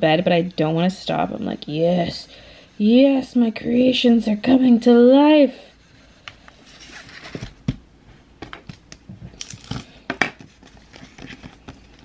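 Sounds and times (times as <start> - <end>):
paper crinkling: 9.3 - 12.0.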